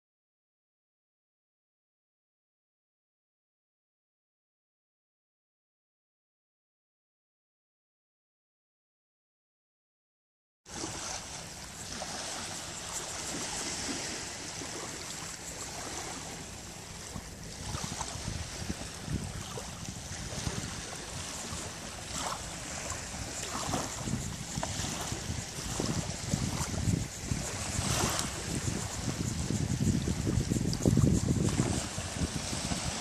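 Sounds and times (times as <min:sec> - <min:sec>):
sharper water splashes: 0:10.7 - 0:33.0
small waves washing onto beach: 0:10.7 - 0:33.0
wind buffeting microphone: 0:10.8 - 0:33.0.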